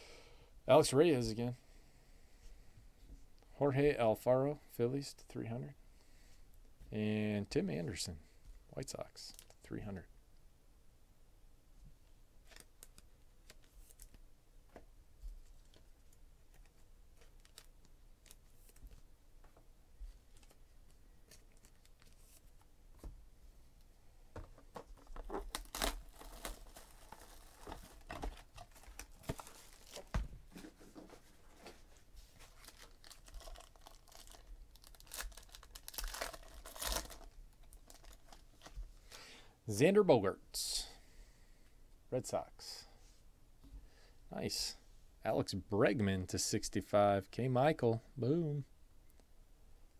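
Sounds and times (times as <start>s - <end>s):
plastic wrapping tearing and crinkling: 25.1s - 30.2s, 32.4s - 38.7s.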